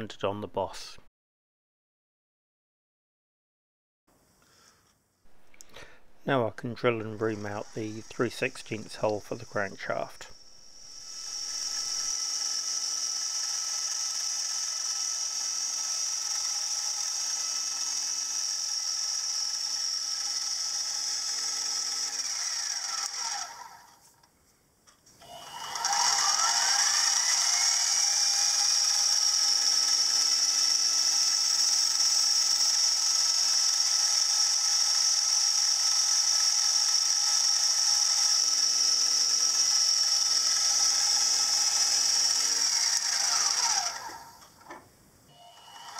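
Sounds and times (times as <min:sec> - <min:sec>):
milling machine spindle whine: 0:07.0 - 0:23.7, 0:25.2 - 0:44.5, 0:45.3 - 0:45.9.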